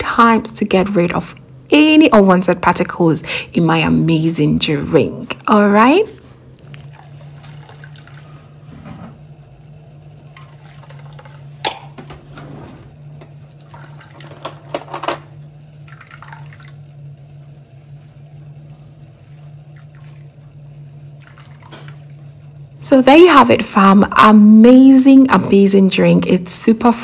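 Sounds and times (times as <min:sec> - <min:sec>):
low hum: 0:00.0 - 0:27.0
liquid trickling and splashing: 0:06.7 - 0:08.5, 0:10.3 - 0:11.4, 0:13.5 - 0:14.7, 0:15.8 - 0:16.8, 0:21.2 - 0:22.2.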